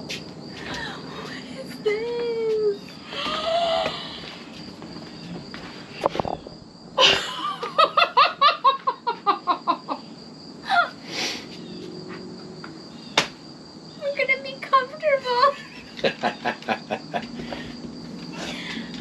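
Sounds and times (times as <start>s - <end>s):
woman laughing: 3.1s - 4.3s, 7.0s - 10.0s, 10.6s - 11.0s, 15.2s - 17.7s, 18.4s - 19.0s.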